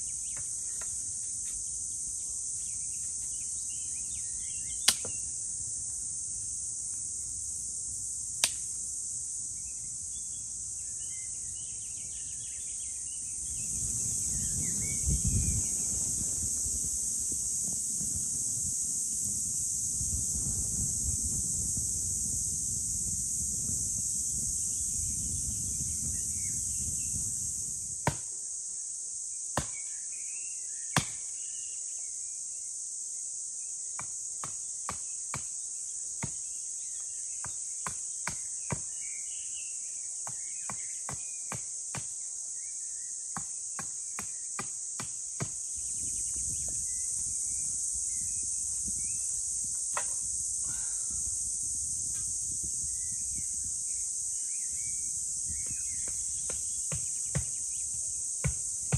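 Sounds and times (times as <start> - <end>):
insects chirping: 0.0 - 58.9
axe chopping wood: 28.0 - 28.4, 29.6 - 29.8, 31.0 - 31.2, 37.8 - 38.9, 43.4 - 45.6, 58.4 - 58.6.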